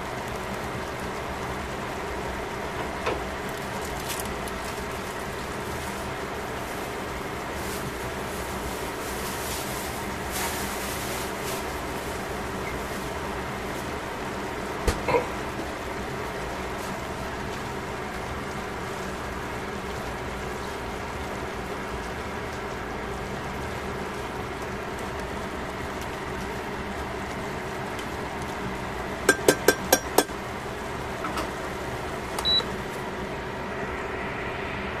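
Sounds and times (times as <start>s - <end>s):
pot cooking with hiss: 0.0s - 35.0s
utensil tapping metal pot: 29.3s - 30.4s.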